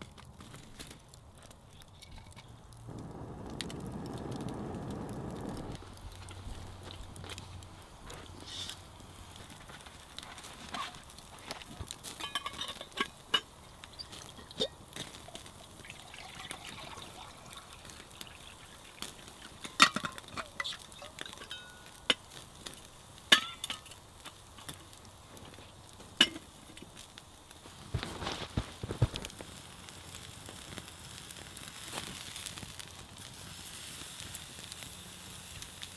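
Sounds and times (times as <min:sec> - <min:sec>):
campfire crackling: 0:00.0 - 0:35.9
metal pots clinking: 0:12.1 - 0:22.2
water pouring into metal can: 0:13.9 - 0:21.2.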